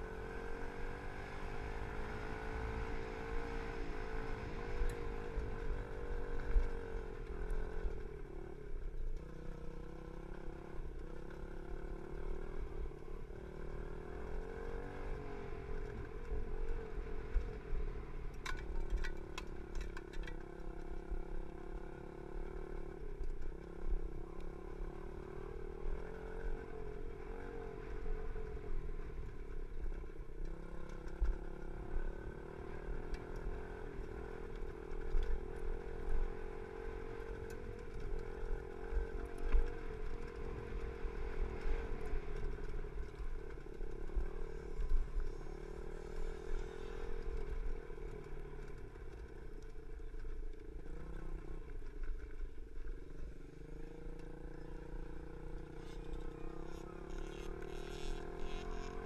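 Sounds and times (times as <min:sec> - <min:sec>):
dirt bike engine revving: 0:54.3 - 0:59.0.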